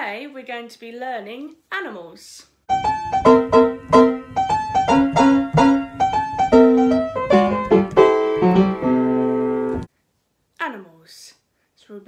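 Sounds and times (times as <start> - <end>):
piano jingle: 2.7 - 9.9.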